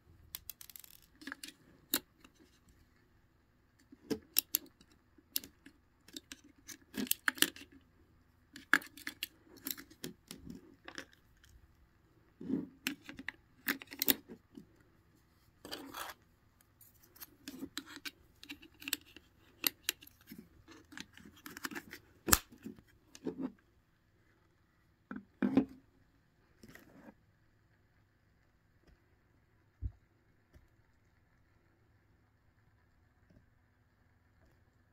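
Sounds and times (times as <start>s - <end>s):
batteries clicking and rattling: 0.4s - 2.6s.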